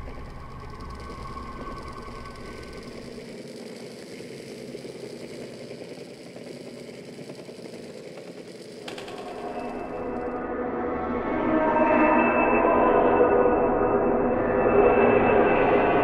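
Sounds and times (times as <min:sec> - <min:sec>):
engine-like rattling clatter: 0:00.0 - 0:10.3.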